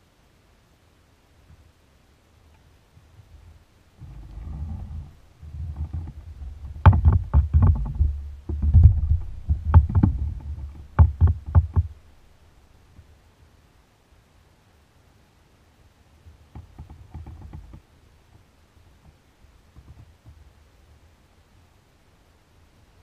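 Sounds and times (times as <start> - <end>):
gear knocking against kayak hull: 4.0 - 12.0
low rumble: 4.0 - 12.4.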